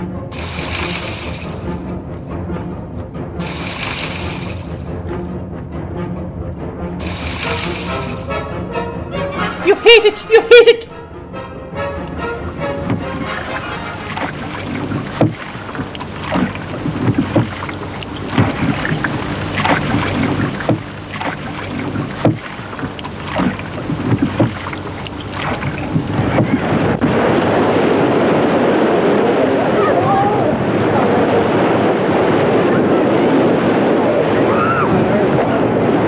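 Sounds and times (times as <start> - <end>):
oars splashing water: 0.3 - 2.0, 3.4 - 5.1, 7.0 - 8.5, 12.1 - 36.0
wind and waves rushing: 0.3 - 2.2, 3.4 - 5.2, 7.0 - 8.7, 12.1 - 36.0.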